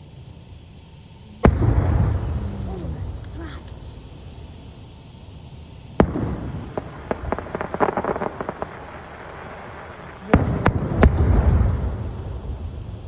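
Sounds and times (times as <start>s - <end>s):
firework bangs: 0.0s - 13.0s
firework crackling pops: 0.0s - 13.0s
low lingering rumble: 0.0s - 13.0s.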